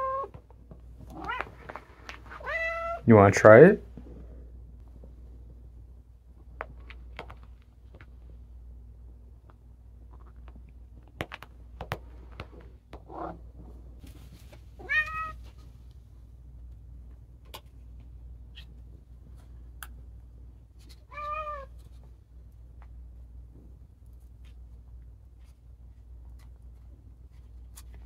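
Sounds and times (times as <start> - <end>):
cat meowing: 0.0 - 0.3, 1.1 - 1.6, 2.4 - 3.0, 14.8 - 15.4, 21.1 - 21.7.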